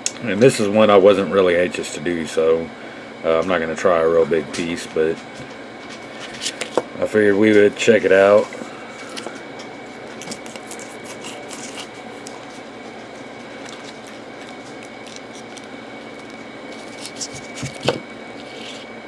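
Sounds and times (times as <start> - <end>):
room hum: 0.0 - 19.0
plastic wrapper crinkling: 10.0 - 18.9.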